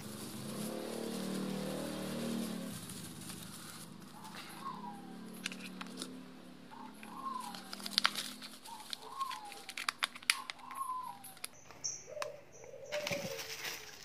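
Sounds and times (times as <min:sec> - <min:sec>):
bubble wrap crinkling: 0:00.0 - 0:06.1, 0:07.1 - 0:11.6, 0:13.0 - 0:14.0
bird whistled calls: 0:04.1 - 0:05.4, 0:06.7 - 0:07.9, 0:08.6 - 0:13.4.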